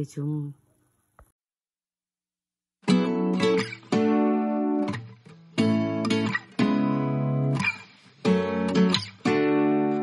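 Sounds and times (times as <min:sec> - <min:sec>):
acoustic guitar strumming chords: 0:02.8 - 0:10.0.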